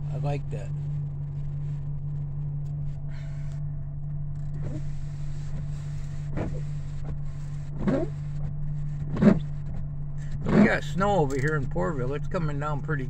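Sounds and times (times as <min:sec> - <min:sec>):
truck engine idling: 0:00.0 - 0:13.0
windshield wipers swishing: 0:04.3 - 0:11.6.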